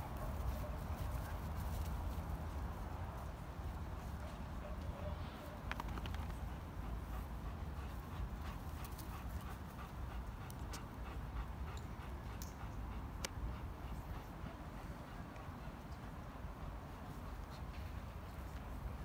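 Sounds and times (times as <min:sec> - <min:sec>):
dog panting: 0:06.2 - 0:19.0.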